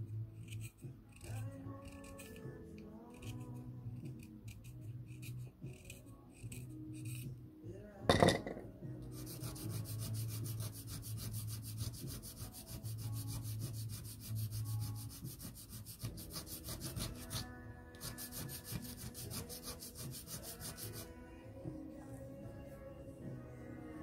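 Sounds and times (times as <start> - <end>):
pencil scratching on sandpaper: 0.3 - 2.4, 3.1 - 7.3, 9.1 - 21.2.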